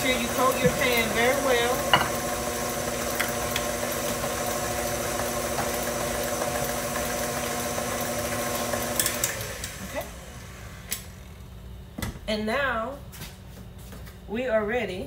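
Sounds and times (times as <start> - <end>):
stand mixer motor running: 0.0 - 11.3.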